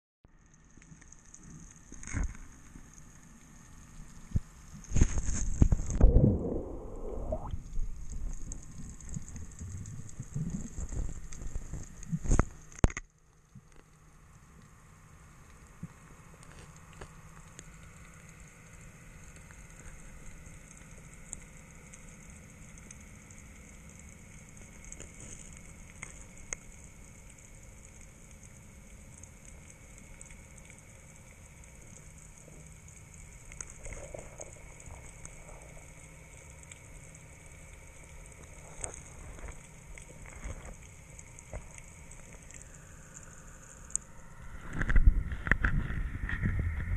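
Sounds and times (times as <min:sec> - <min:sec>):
faint crackles: 0:00.3 - 0:46.9
water rushing and gurgling: 0:05.7 - 0:10.6.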